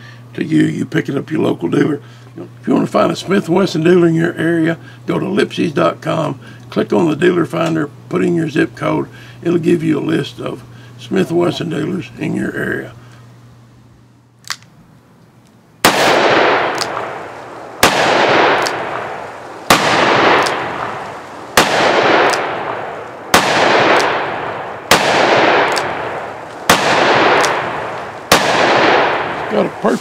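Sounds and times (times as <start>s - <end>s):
revolver shots with echo: 15.9s - 29.8s.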